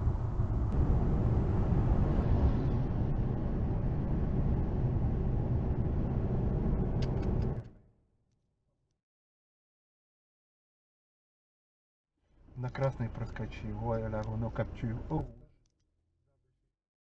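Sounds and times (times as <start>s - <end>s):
car tyres and engine rumble: 0.0s - 7.8s, 12.4s - 15.4s.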